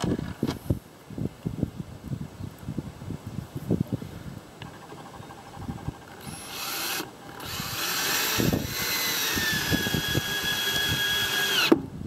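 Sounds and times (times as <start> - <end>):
cordless drill whine: 5.8 - 11.8.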